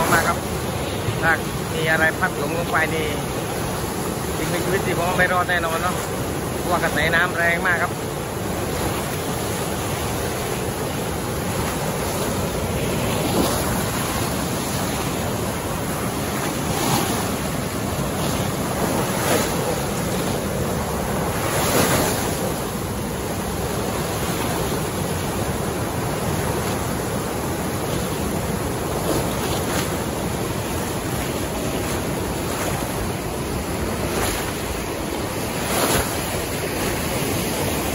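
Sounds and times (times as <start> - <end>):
turbulent water rushing: 0.0 - 37.9.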